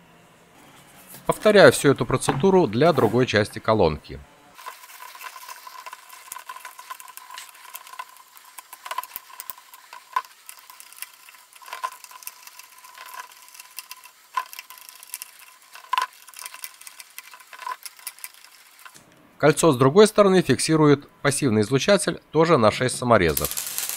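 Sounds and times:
faint steady whine: 0.0 - 2.2
small clicks and scrapes: 4.6 - 19.2, 23.4 - 23.9.

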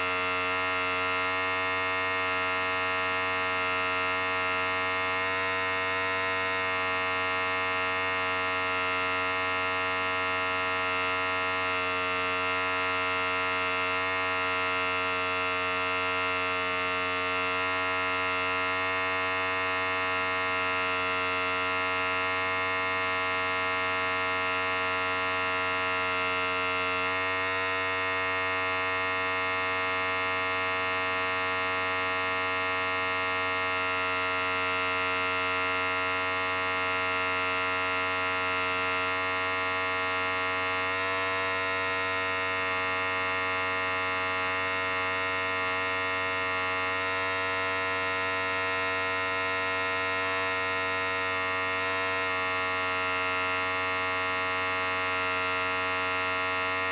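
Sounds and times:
electric hair clipper buzzing: 0.0 - 0.9.

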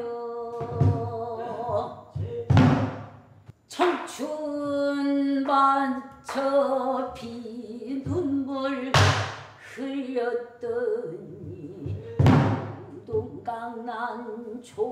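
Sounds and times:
person singing with vibrato: 0.0 - 2.6.

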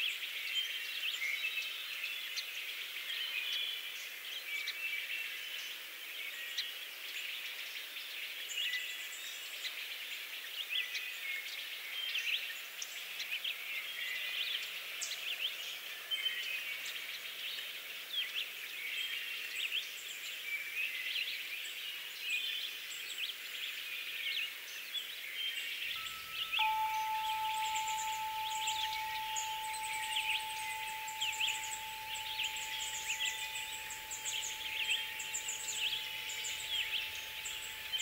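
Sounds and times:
birds chirping and calling: 26.0 - 38.0.

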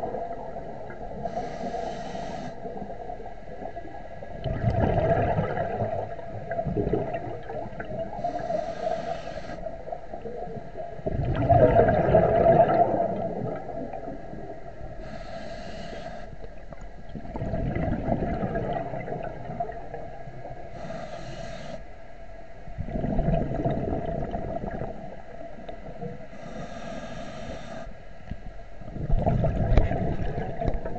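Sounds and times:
exhaust bubbles underwater: 0.0 - 1.8, 2.5 - 8.9, 9.5 - 15.2, 16.4 - 20.7, 22.7 - 26.2, 28.8 - 30.9
scuba regulator breathing hiss: 1.2 - 2.7, 8.1 - 9.8, 15.0 - 16.4, 20.7 - 21.9, 26.2 - 28.0.

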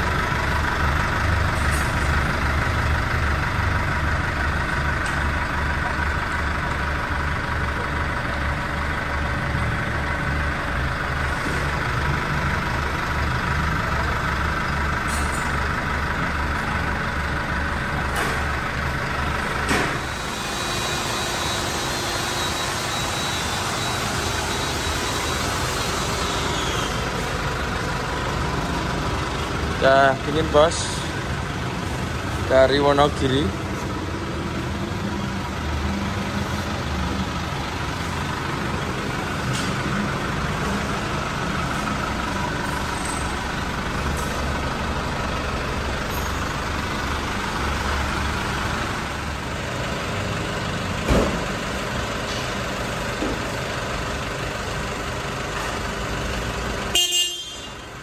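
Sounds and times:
diesel engine idling: 0.0 - 58.0
compressor whine: 19.7 - 27.9.

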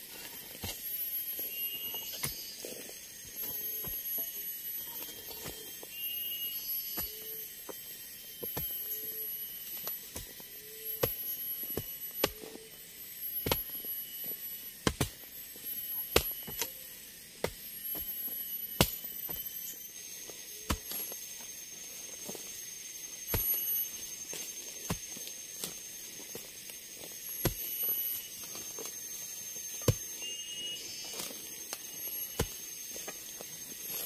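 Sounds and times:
shrill insect calls: 0.0 - 34.0
hand tool strikes: 11.0 - 12.5, 13.4 - 13.8, 23.2 - 24.0.

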